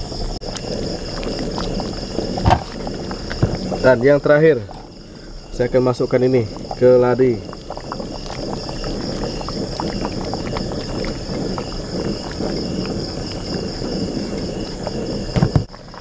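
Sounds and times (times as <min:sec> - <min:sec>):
crickets chirping: 0:00.0 - 0:16.0
curry bubbling and popping: 0:00.2 - 0:16.0
single thump: 0:02.4 - 0:02.7, 0:15.4 - 0:15.7.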